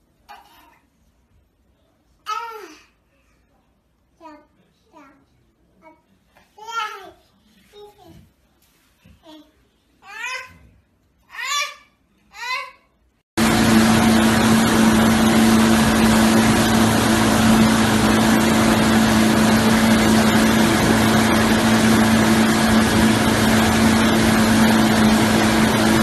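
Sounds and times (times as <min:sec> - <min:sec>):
motorboat engine: 0:13.4 - 0:26.0.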